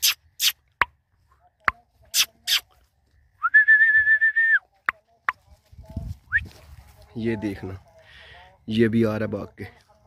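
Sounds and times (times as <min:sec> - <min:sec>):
short sharp clicking calls: 0:00.0 - 0:00.6, 0:02.1 - 0:02.7
person whistling a steady note: 0:03.4 - 0:04.6.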